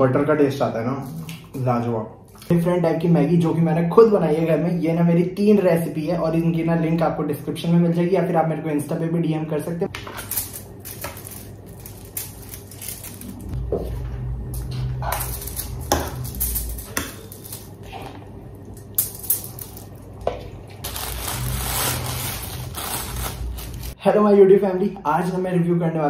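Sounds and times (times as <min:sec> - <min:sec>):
low rumble: 0:12.8 - 0:17.7.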